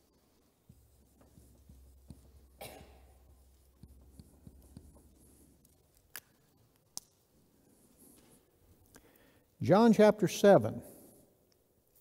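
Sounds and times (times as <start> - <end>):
marker writing on whiteboard: 0.0 - 6.9
soft taps: 0.7 - 2.6, 3.2 - 5.1.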